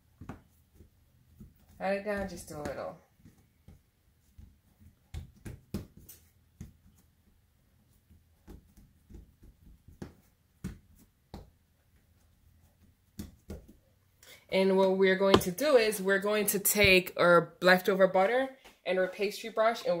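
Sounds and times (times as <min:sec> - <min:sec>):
hands patting dough: 0:00.0 - 0:14.1.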